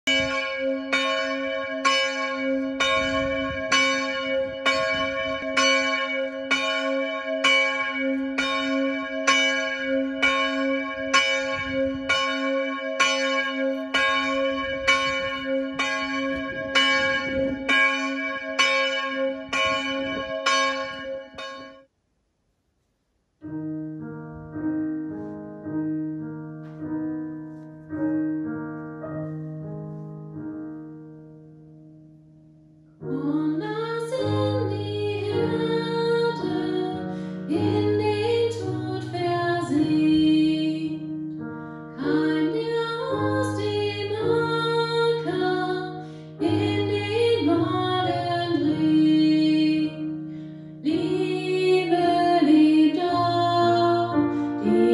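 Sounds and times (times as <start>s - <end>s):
piano playing: 0.0s - 21.7s, 23.4s - 54.9s
church bell tolling: 0.1s - 21.8s.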